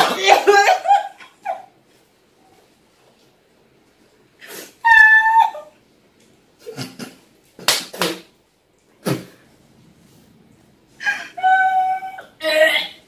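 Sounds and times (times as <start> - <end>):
woman laughing: 0.0 - 1.7
woman squealing: 4.8 - 5.8, 11.0 - 12.9.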